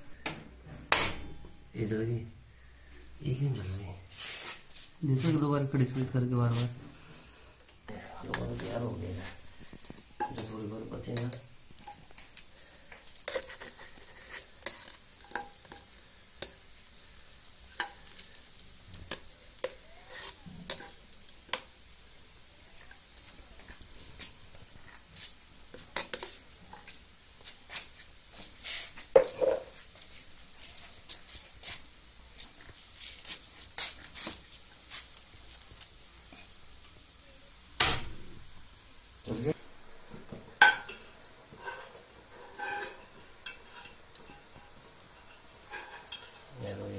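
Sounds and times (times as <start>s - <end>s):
ghee sizzling in a pot: 0.1s - 46.9s
metal spoon clinking and scraping: 40.6s - 46.5s.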